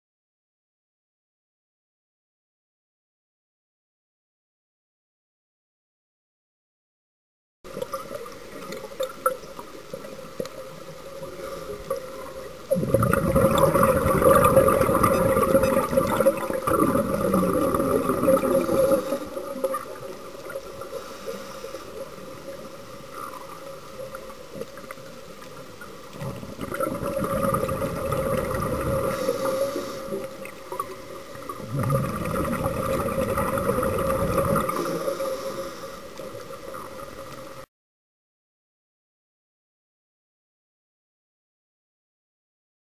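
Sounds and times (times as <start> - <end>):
exhaled bubbles gurgling: 7.7 - 37.6
underwater hum: 7.7 - 37.7.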